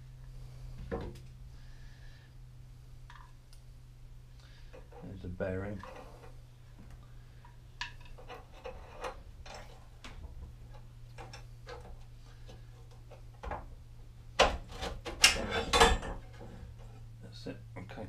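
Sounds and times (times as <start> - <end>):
light metal clicks and scrapes: 4.4 - 13.7.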